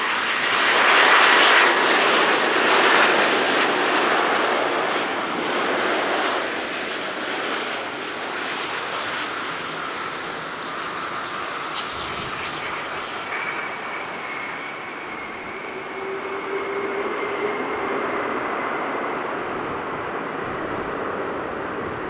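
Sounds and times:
high jet engine whine: 0.0 - 22.0
jet engines rushing: 0.0 - 22.0.

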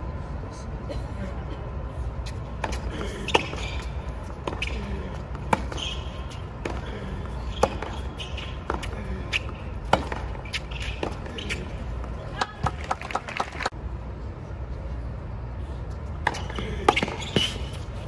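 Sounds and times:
tennis ball bouncing: 2.5 - 13.7, 16.2 - 17.8
racket hitting tennis ball: 2.6 - 13.7, 16.2 - 17.9.

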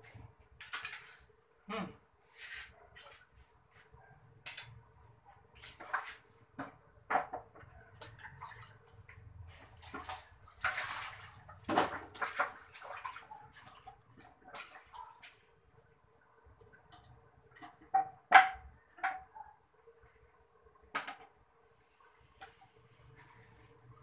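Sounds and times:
water splashing and pouring: 0.5 - 1.3, 7.9 - 15.9.

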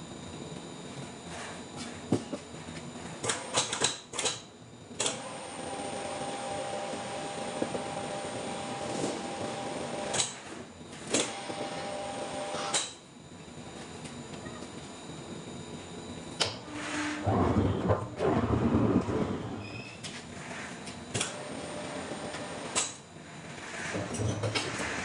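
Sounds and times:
machine hum: 13.4 - 25.0.

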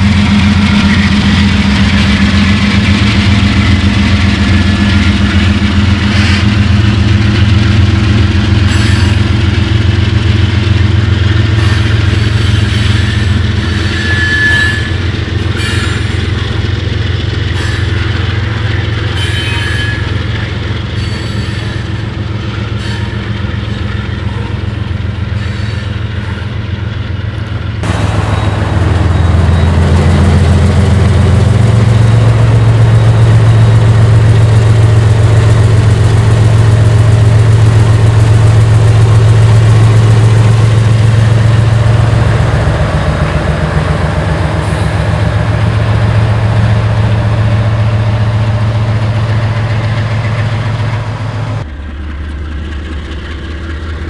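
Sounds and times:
diesel locomotive engine running: 0.0 - 54.0
tank cars rolling past: 27.8 - 54.0.

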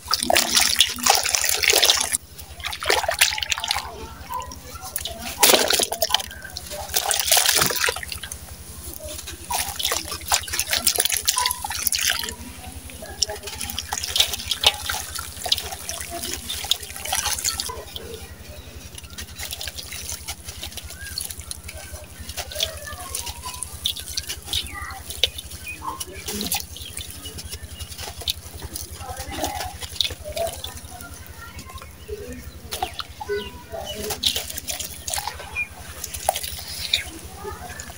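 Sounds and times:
bits splashing into water: 0.0 - 37.9.

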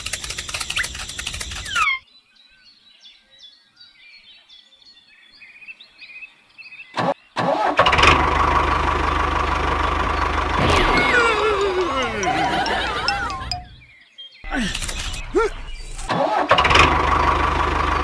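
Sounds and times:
faint bird chirps: 0.0 - 7.4
engine chugging: 7.5 - 13.9, 14.5 - 18.0.

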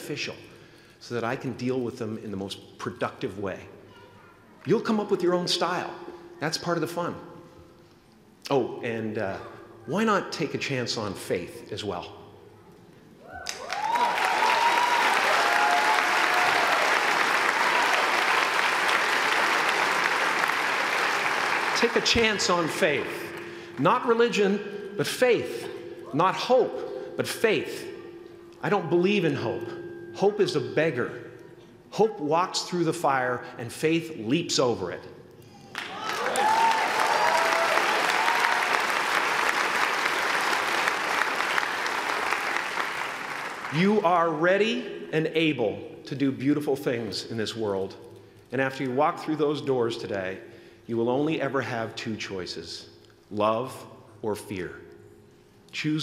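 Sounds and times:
audience applauding and cheering: 13.2 - 23.6, 35.7 - 43.8.

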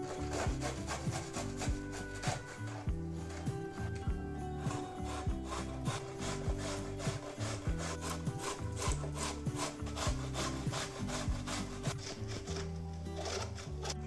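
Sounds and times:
carrots grated on metal grater: 5.1 - 14.0.

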